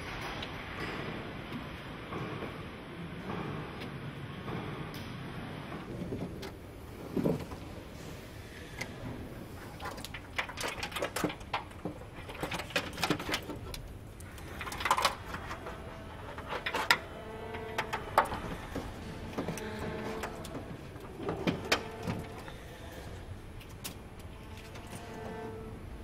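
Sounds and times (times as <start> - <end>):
low factory hum: 0.0 - 26.0
clicks and knocks of assembly work: 8.8 - 25.6.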